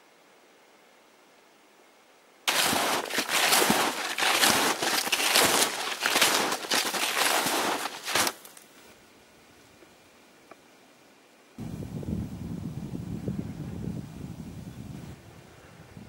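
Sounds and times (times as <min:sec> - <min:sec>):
snowshoes crunching through snow: 0:02.5 - 0:08.6.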